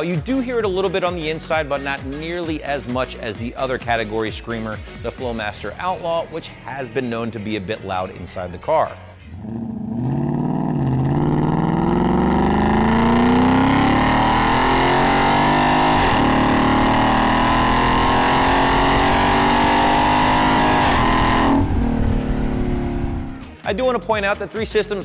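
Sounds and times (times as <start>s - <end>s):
car engine exhaust revving: 9.3s - 23.6s.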